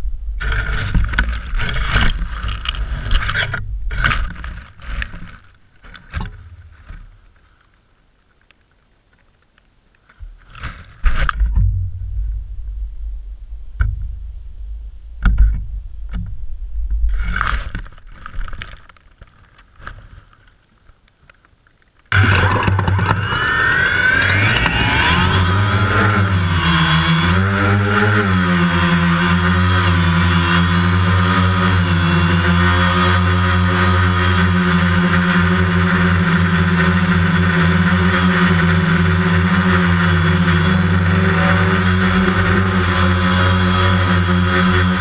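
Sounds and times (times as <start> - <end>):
loud wavering steady tone: 0.0 - 5.2, 11.2 - 17.5, 22.1 - 45.0
camera rubbing through dry grass: 0.4 - 7.8, 17.0 - 20.6.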